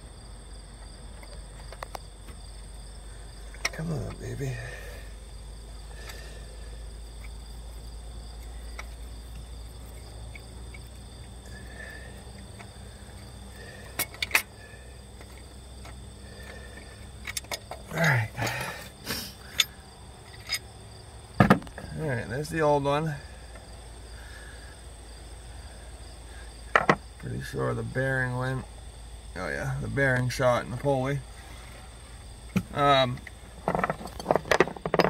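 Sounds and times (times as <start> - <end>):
faint insects chirping: 0.0 - 35.0
metal clicks and knocks: 13.9 - 14.5, 26.7 - 27.0, 32.5 - 35.0.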